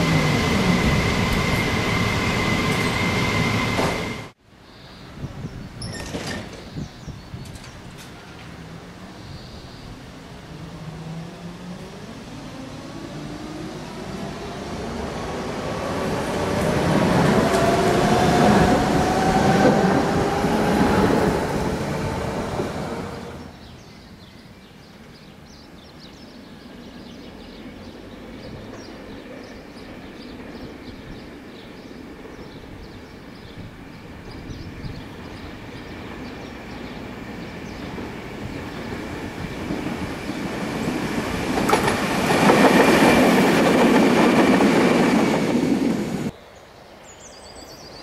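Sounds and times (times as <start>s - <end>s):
tram motors whining rising pitch: 0.0s - 4.4s, 10.5s - 23.5s.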